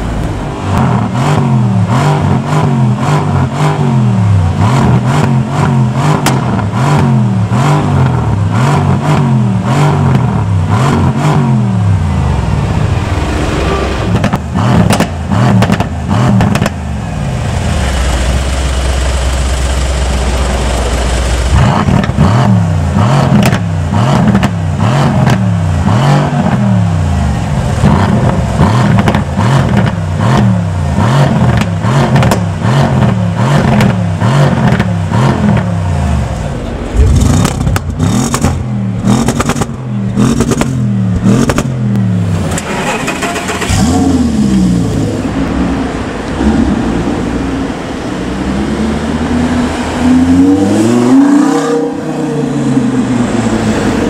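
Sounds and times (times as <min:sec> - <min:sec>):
exhaust crackles: 0:00.0 - 0:51.1
car engine revving: 0:00.0 - 0:54.0.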